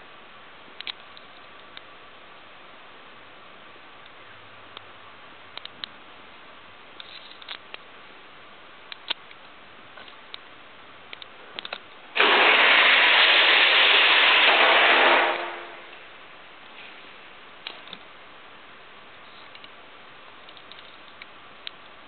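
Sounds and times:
faint clicks: 5.6s - 6.0s, 8.9s - 10.5s, 19.3s - 19.8s, 20.4s - 22.0s
toy cars rolling down metal track: 12.2s - 15.9s.

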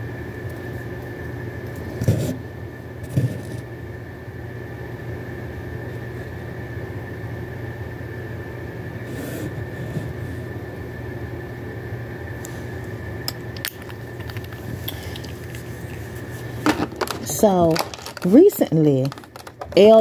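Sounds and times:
steady low hum: 0.0s - 20.0s
glass bottles clicking: 17.0s - 20.0s.

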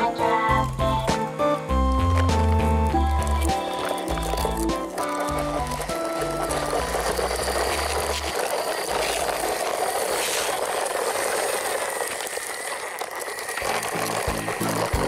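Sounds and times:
background music: 0.0s - 8.2s
toy truck wheels rolling on gravel: 0.0s - 15.0s.

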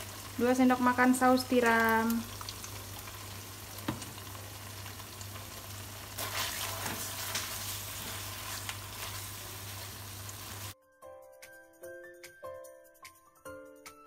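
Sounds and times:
onion sizzling in a wok: 0.0s - 10.8s
spatula scraping a wok: 6.2s - 10.8s.

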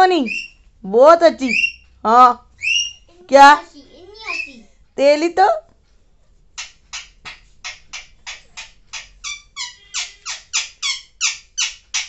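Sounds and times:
parakeet calling: 0.1s - 0.6s, 1.4s - 2.0s, 2.6s - 3.2s, 4.0s - 4.6s, 6.6s - 12.0s.

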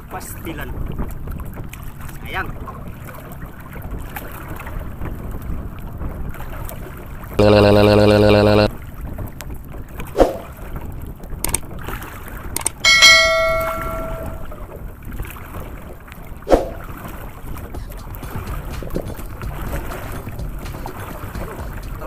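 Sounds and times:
wind: 0.0s - 7.4s, 8.7s - 22.0s
water noise: 10.0s - 22.0s
bell ding: 12.8s - 14.5s
short swooshes: 16.5s - 16.9s.

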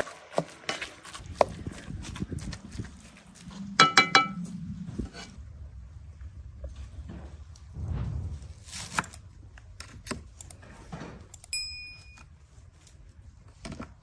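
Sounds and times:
ringing clinks: 11.5s - 12.2s.

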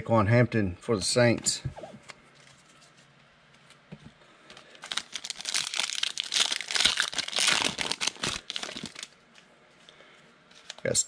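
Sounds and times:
foil card pack crinkling and tearing: 4.5s - 9.2s.

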